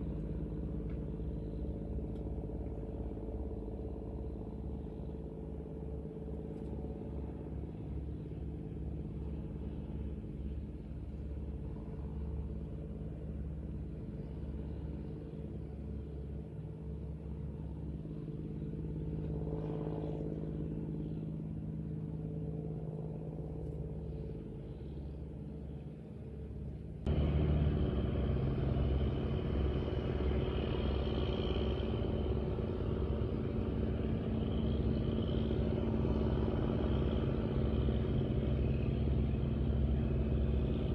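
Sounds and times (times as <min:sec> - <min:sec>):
engine humming: 0:00.0 - 0:40.9.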